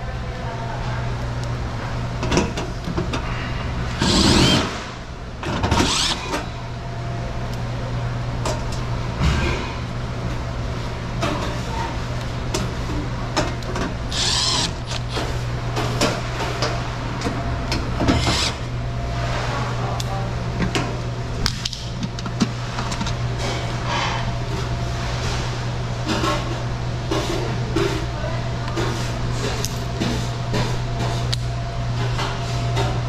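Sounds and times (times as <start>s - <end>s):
steady low hum: 0.0s - 33.0s
cordless driver whirring: 4.0s - 4.7s, 5.7s - 6.4s, 14.1s - 15.3s, 18.2s - 18.7s.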